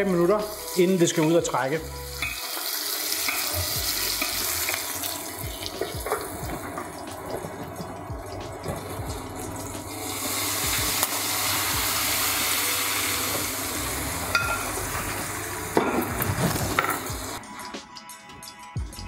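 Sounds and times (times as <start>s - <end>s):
butter sizzling: 0.0s - 17.4s
pan knock: 14.4s - 14.7s.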